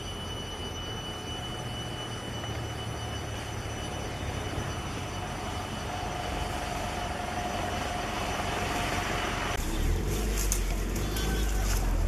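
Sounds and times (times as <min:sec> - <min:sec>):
steady tone: 0:00.0 - 0:10.0
vehicle engine running: 0:00.0 - 0:12.0.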